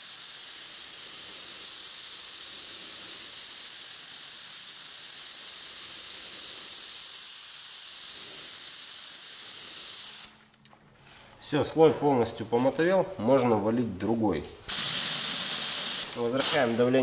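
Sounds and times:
compressed air hissing from spray gun: 0:00.0 - 0:10.4, 0:14.7 - 0:16.9.

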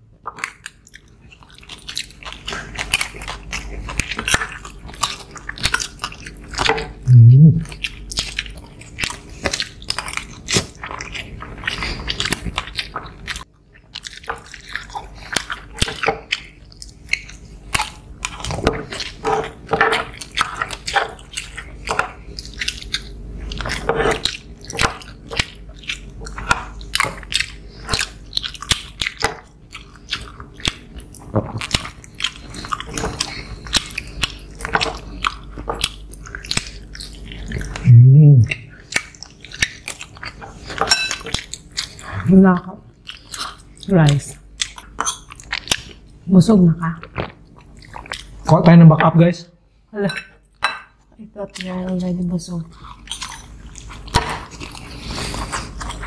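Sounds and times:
people chewing food: 0:00.0 - 0:56.0.

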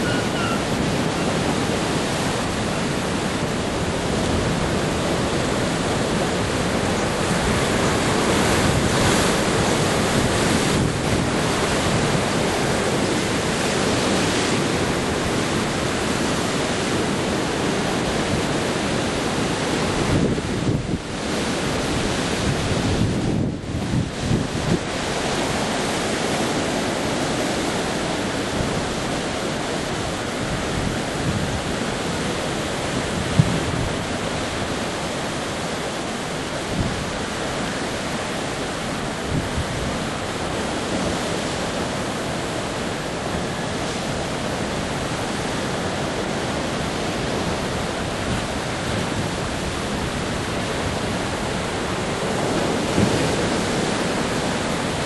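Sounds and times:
surf breaking over rocks: 0:00.0 - 0:55.0.

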